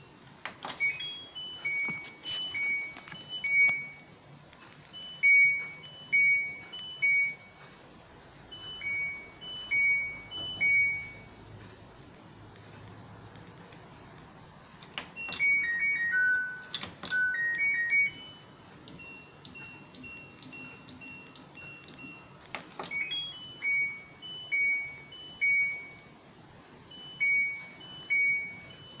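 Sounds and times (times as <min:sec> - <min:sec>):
washing machine electronic jingle: 0:00.0 - 0:07.8, 0:08.4 - 0:11.5, 0:15.1 - 0:29.0.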